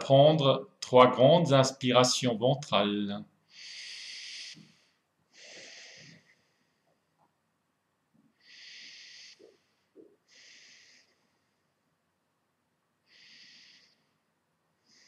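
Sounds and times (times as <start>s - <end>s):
man breathing deeply: 3.5s - 6.9s, 8.4s - 11.7s.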